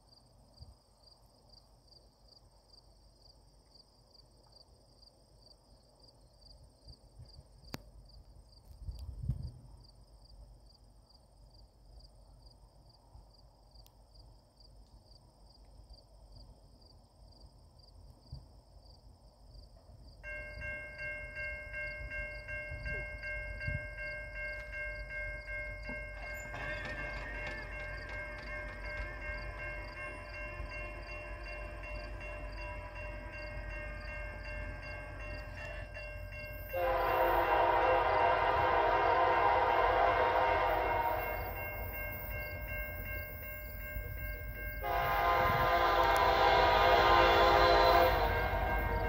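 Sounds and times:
crickets chirping: 0.0s - 49.0s
distant locomotive air horn: 26.1s - 42.3s, 44.8s - 49.0s
low wind rumble: 27.1s - 49.0s.

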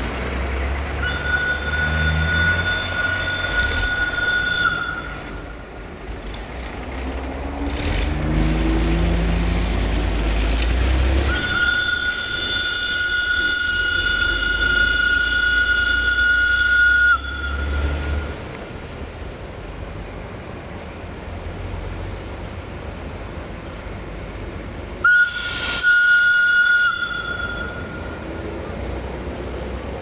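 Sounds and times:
diesel locomotive engine rumbling: 0.0s - 30.0s
high steady whistling tone: 0.9s - 5.8s, 11.1s - 18.6s, 25.0s - 28.8s.

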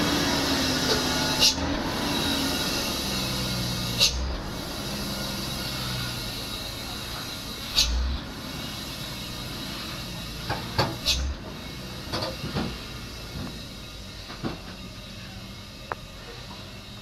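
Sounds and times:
truck engine humming: 0.0s - 17.0s
truck body knocks and clanks: 12.1s - 12.8s, 14.2s - 14.8s.

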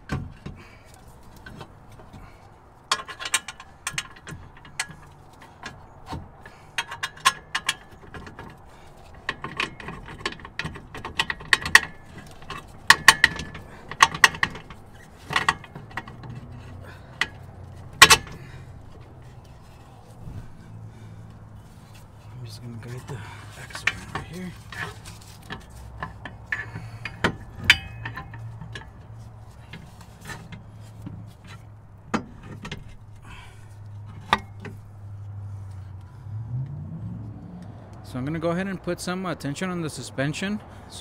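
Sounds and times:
metal-on-metal clinks: 26.0s - 29.0s.

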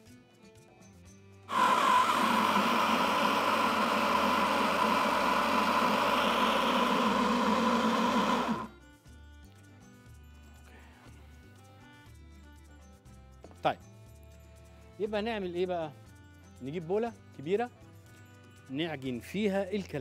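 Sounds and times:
food processor motor running: 1.5s - 8.8s.

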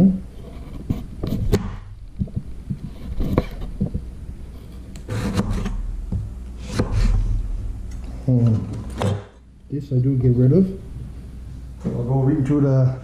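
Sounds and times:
knife scraping through stalk: 4.6s - 5.8s.

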